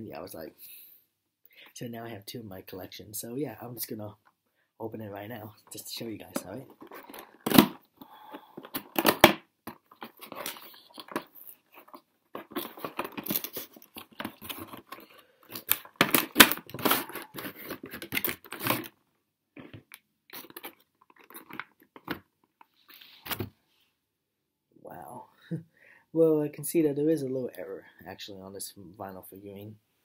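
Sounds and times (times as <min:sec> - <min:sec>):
cardboard and plastic rustling: 0:05.7 - 0:19.0, 0:19.6 - 0:23.5
sharp plastic crackles: 0:06.3 - 0:19.0.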